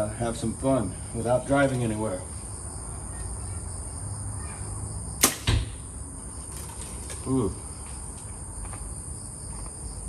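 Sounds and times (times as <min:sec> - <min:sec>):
crickets trilling: 0:00.0 - 0:10.0
arrow thud into foam target: 0:05.2 - 0:05.8.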